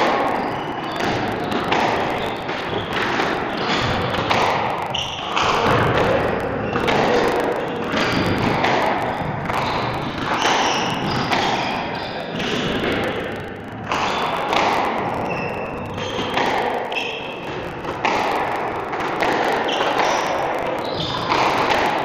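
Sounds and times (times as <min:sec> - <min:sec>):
squash ball hits echoing: 0:00.0 - 0:22.0
shoes squeaking on wooden floor: 0:00.3 - 0:07.8.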